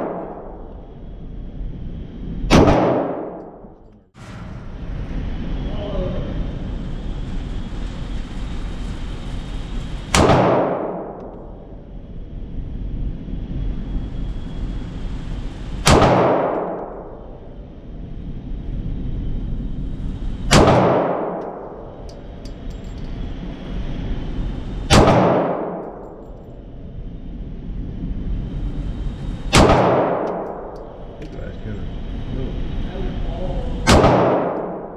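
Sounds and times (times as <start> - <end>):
pistol shots echoing: 33.9 - 34.8.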